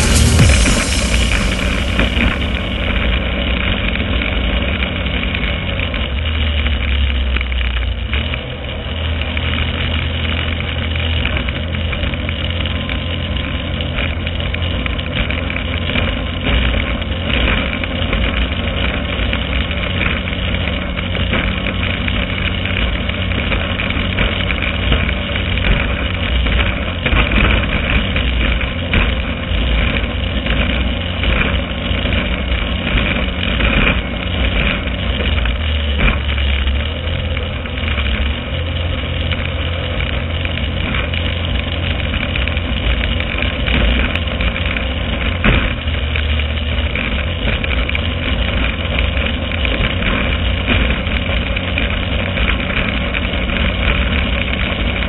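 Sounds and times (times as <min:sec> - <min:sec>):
water noise: 0:00.0 - 0:08.0
outboard engine running at speed: 0:00.0 - 0:55.0
wind: 0:00.0 - 0:55.0.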